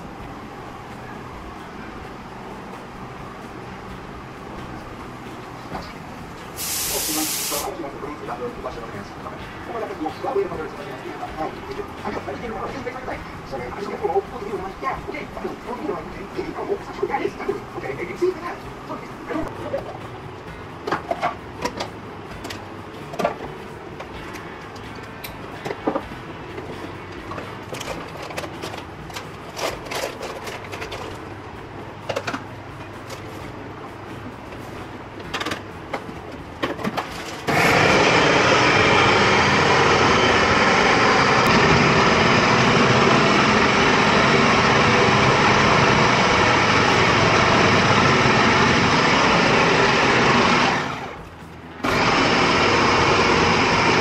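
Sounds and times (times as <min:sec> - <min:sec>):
food processor motor running: 0:37.5 - 0:51.2, 0:51.8 - 0:54.0.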